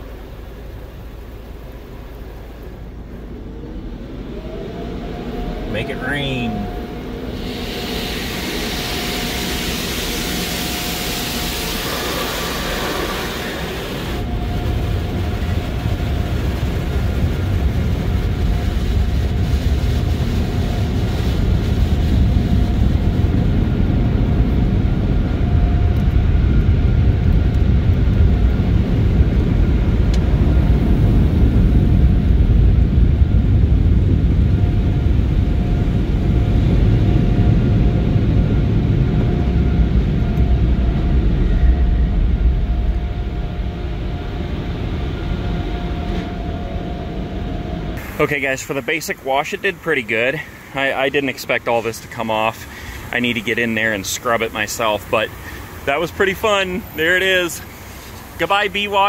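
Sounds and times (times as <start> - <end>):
water spraying on car: 0.0 - 24.0, 48.0 - 59.0
dryer blowers rushing air: 0.0 - 59.0.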